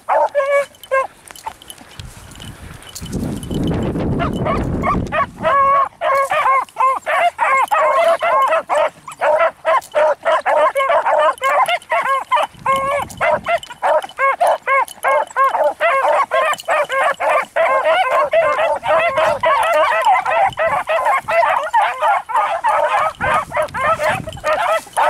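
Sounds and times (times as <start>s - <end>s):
beagles baying: 0.0s - 25.0s
wind buffeting microphone: 1.7s - 6.0s, 12.3s - 14.1s, 18.2s - 21.9s, 22.5s - 25.0s.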